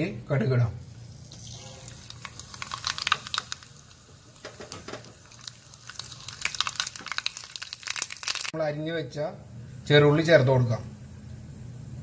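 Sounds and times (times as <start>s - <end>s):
hot oil crackling in a pan: 0.9s - 8.6s
mustard seeds popping: 1.8s - 8.5s.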